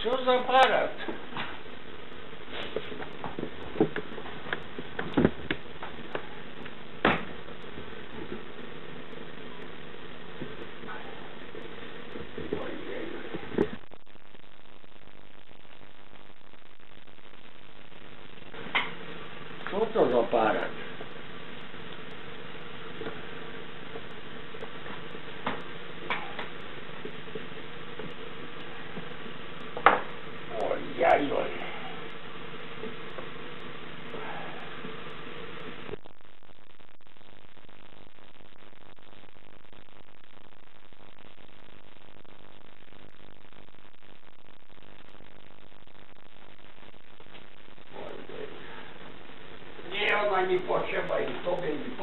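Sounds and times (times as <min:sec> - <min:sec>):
steady hiss: 0:00.0 - 0:52.0.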